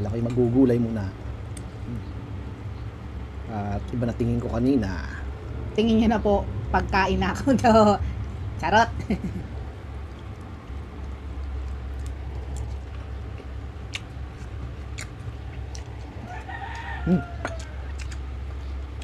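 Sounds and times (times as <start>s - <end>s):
steady low hum: 0.0s - 19.0s
chewing: 9.9s - 19.0s.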